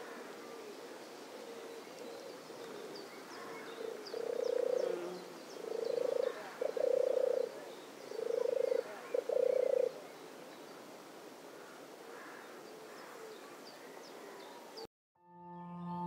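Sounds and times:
dove purring song: 0.0 - 10.1.

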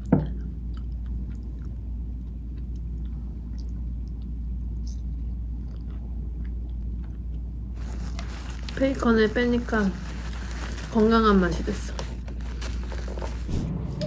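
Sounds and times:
steady low hum: 0.0 - 14.0
person chewing a sandwich: 0.3 - 8.7.

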